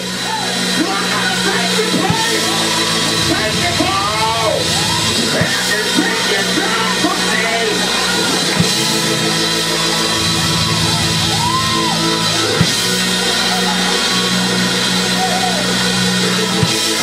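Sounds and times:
church organ chords: 0.0 - 17.0
person singing: 0.9 - 8.6
drum hits: 1.0 - 14.3, 16.5 - 17.0.

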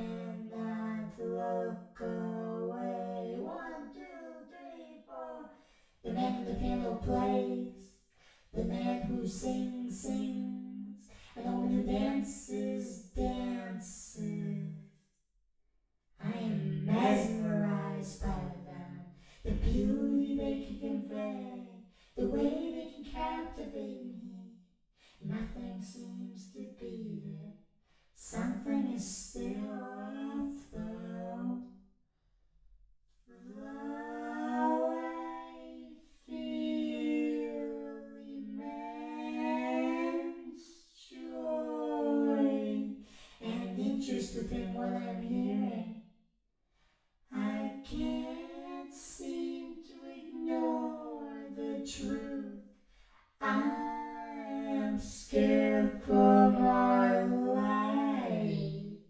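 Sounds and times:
person singing wordless melody: 0.0 - 7.9, 16.2 - 24.4, 33.4 - 45.9, 53.4 - 58.9.

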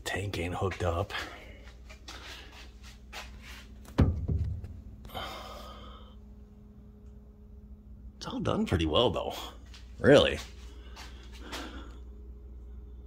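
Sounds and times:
heavy thump: 3.9 - 4.9.

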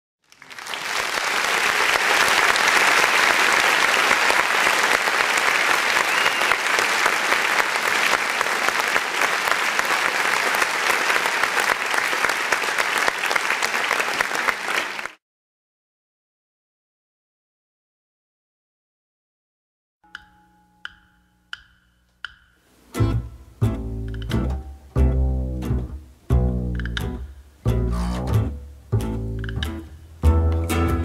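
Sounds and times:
audience applause: 0.2 - 15.2.

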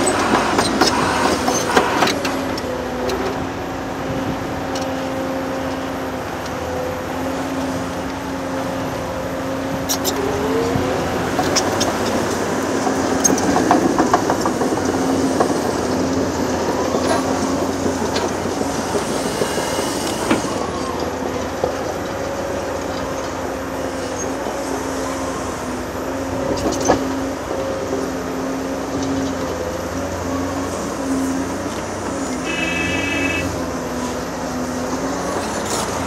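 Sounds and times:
diesel engines running: 0.0 - 36.0
steel crawler tracks clanking: 0.0 - 36.0
knocks and clatter: 11.4 - 20.5.

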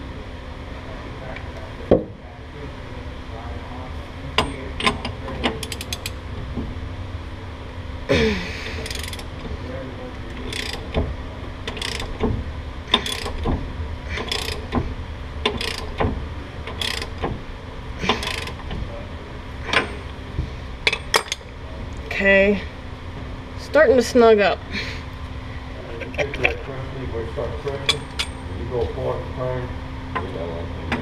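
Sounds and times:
ratchet wrench clicking: 4.4 - 6.2, 8.8 - 9.3, 10.3 - 11.0, 11.6 - 12.3, 12.9 - 13.5, 14.2 - 14.8, 15.4 - 16.0, 16.7 - 17.3, 18.0 - 18.7.

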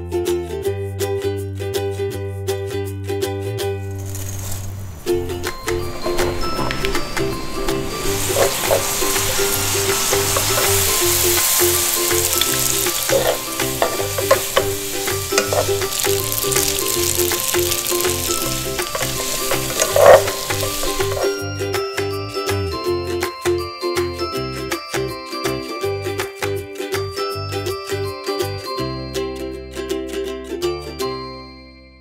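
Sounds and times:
light background music: 2.0 - 29.5
food sizzling in a frying pan: 3.8 - 21.5
tongs knocking against pan: 7.8 - 21.4.

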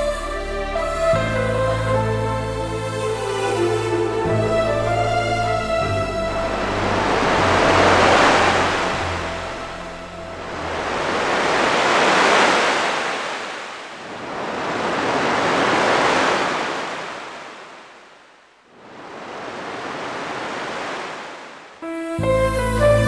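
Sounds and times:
music: 0.0 - 10.7, 21.8 - 23.0
waves breaking on shore: 5.0 - 22.0.

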